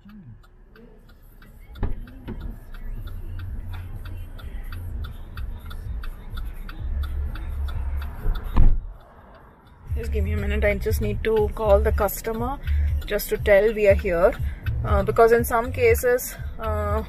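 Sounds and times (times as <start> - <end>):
car rapid ticking: 0.0 - 17.0
low rumbling and bumping: 8.0 - 9.0, 9.9 - 17.0
car door shutting: 8.5 - 8.9.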